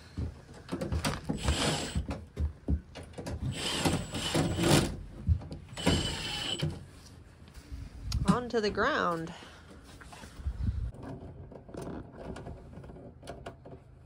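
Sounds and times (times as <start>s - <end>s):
cordless drill whining and rattling: 0.1s - 6.9s.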